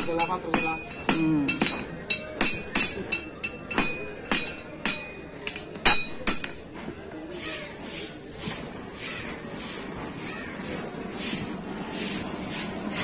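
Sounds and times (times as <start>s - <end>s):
hammer striking blade on anvil: 0.0s - 6.7s.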